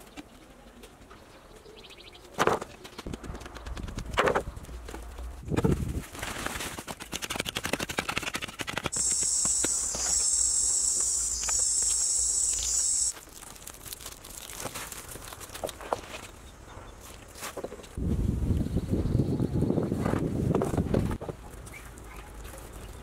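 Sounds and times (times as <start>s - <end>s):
cicada drone: 8.9s - 13.1s.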